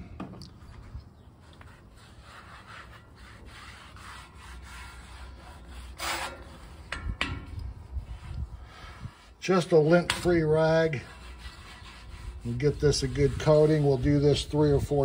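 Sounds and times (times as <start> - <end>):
cloth rubbing on hot griddle: 1.3 - 7.0, 7.8 - 15.0.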